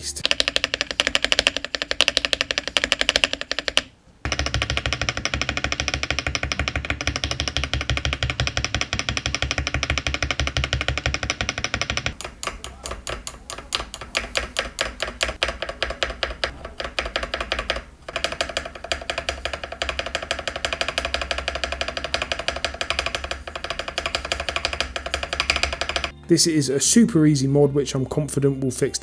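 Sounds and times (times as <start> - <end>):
background music: 0.0 - 0.4, 24.2 - 29.0
keyboard spacebar clacking: 0.2 - 26.2.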